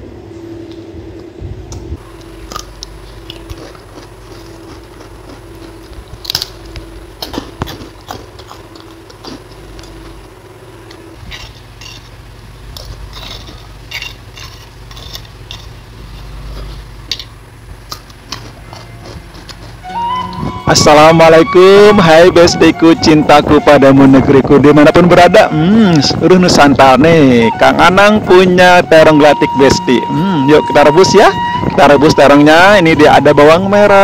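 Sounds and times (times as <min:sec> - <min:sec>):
steady low hum: 0:00.0 - 0:34.0
crunchy bites: 0:02.0 - 0:12.1, 0:12.7 - 0:20.5
person chewing food: 0:02.1 - 0:12.0, 0:12.7 - 0:20.4.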